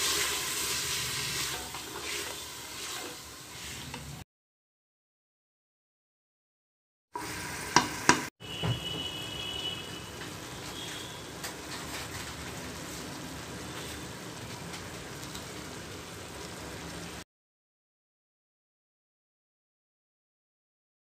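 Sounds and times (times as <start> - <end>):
meat and onions sizzling: 0.0 - 4.2, 7.2 - 8.3, 9.9 - 17.2.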